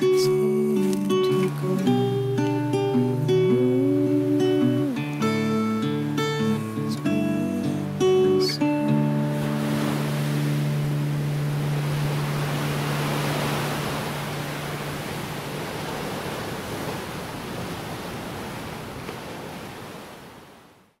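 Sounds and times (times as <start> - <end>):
guitar chord ringing: 0.0 - 14.8
waves breaking on rocks: 7.9 - 20.6.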